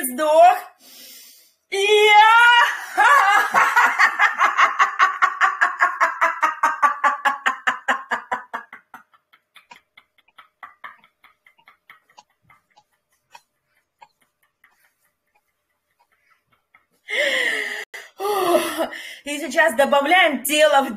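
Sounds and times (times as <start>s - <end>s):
woman laughing in bursts: 2.3s - 19.0s.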